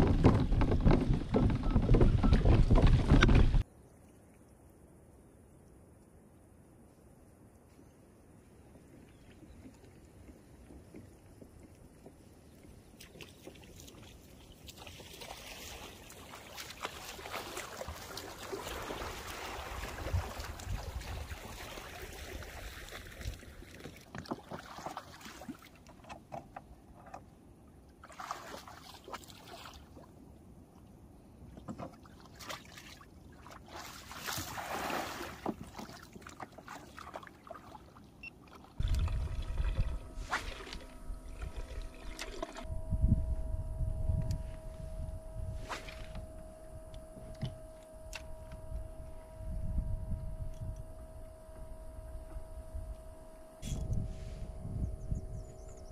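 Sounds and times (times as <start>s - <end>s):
shallow water splashing: 13.0s - 26.1s, 28.0s - 30.1s, 31.6s - 42.7s.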